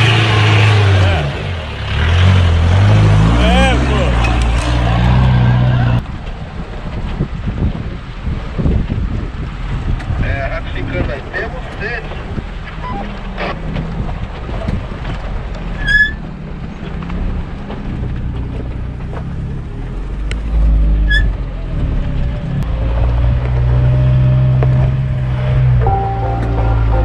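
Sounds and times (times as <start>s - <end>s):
suv engine under load: 0.0s - 10.2s.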